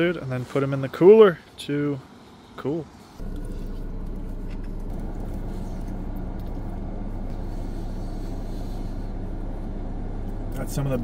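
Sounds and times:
car engine idling: 3.1 - 11.0.

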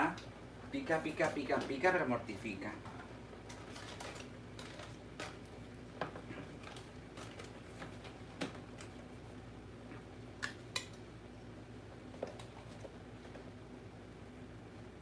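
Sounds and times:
low steady hum: 0.0 - 15.0
aluminium foil rustling: 3.0 - 9.0.

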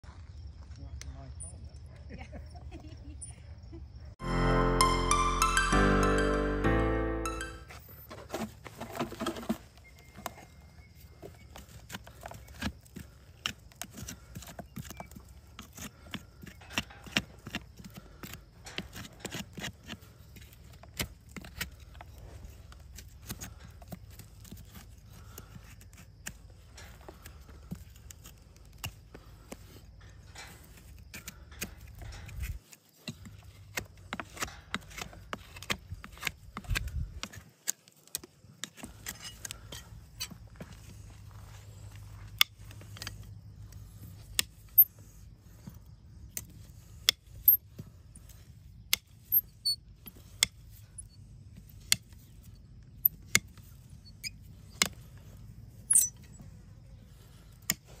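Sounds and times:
hoof knife scraping hoof: 11.4 - 52.3, 53.1 - 56.4.

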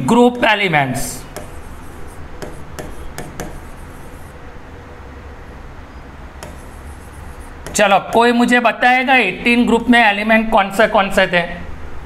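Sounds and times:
low room hum: 0.0 - 12.0
writing taps on a board: 1.3 - 4.2, 6.4 - 8.3.

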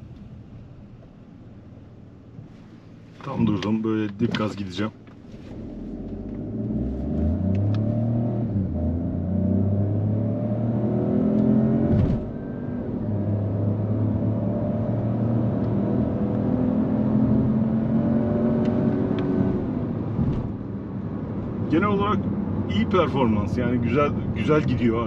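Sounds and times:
car engine accelerating: 5.3 - 24.9.

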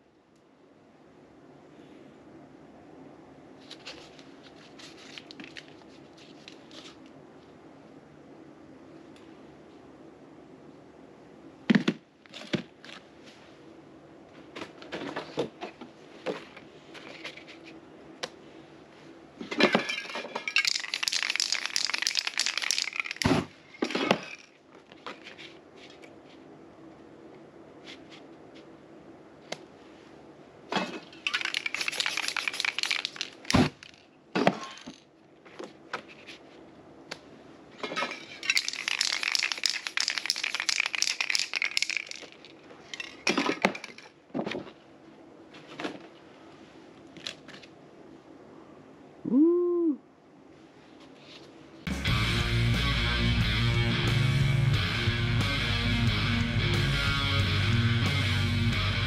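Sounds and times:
handling knocks and clicks: 19.5 - 26.2
spray paint can hissing: 20.6 - 23.3, 31.3 - 33.6, 38.5 - 42.2.

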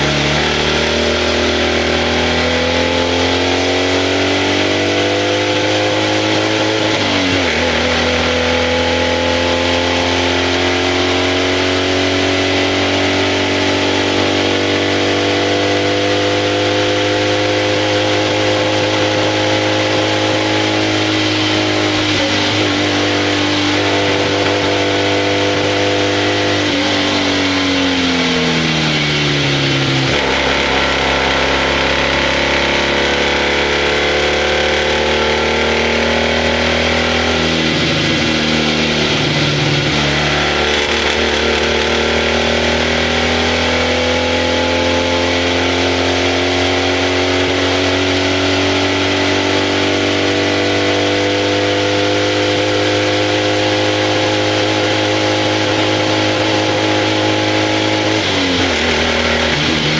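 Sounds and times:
wind and road noise: 0.0 - 59.9
flat-twin engine pulling uphill: 12.3 - 43.4.

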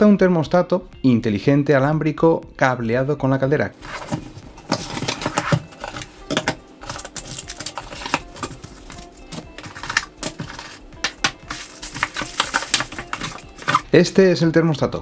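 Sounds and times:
cardboard rustling: 3.8 - 13.9
plastic parts set on table: 3.8 - 13.9.

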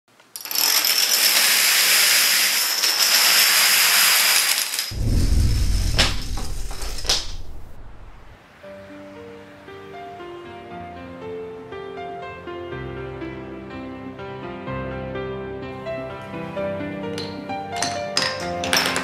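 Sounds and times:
deep boom: 4.9 - 8.4.

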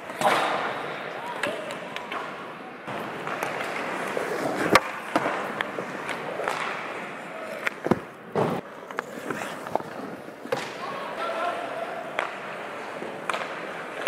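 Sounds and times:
pucks and sticks knocking: 2.9 - 10.8, 12.1 - 14.0
skate blades scraping on ice: 3.0 - 10.7.

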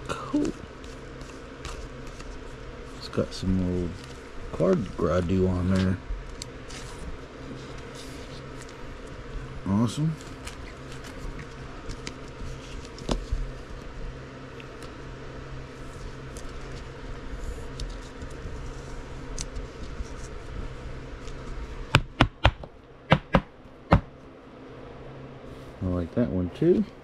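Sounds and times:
steady low hum: 0.0 - 27.0
trading cards being handled: 0.3 - 9.2, 9.9 - 13.9.

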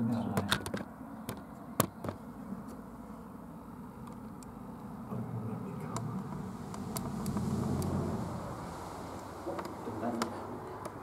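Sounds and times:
low steady rumble: 2.3 - 11.0
faint scraping: 5.1 - 10.8.

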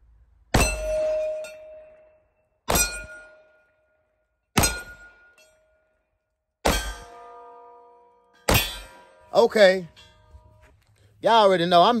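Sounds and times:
steel plate target ringing: 0.5 - 6.0, 6.6 - 10.7.

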